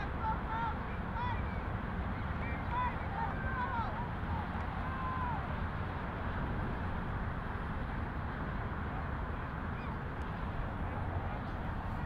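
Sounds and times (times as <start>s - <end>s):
faint distant high calls: 9.0s - 10.1s.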